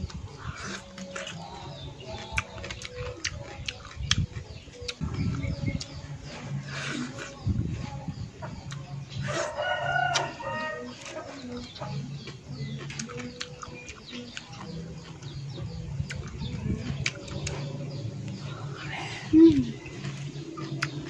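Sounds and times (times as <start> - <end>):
lettuce being chewed: 0.0 - 18.5, 19.3 - 21.0
rooster crowing: 9.3 - 10.9.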